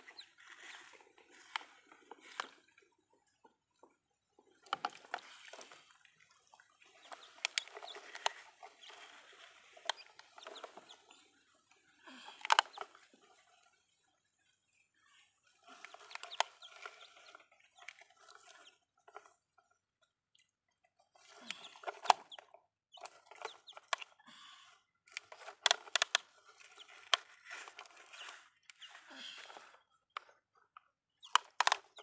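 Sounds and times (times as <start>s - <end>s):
chickens clucking: 0.0s - 2.6s, 6.4s - 11.5s, 15.6s - 17.4s, 21.4s - 24.2s
plastic toy trucks clicking: 4.5s - 5.8s, 7.0s - 11.2s, 12.0s - 13.1s, 15.6s - 19.4s, 21.4s - 24.2s, 25.1s - 32.0s.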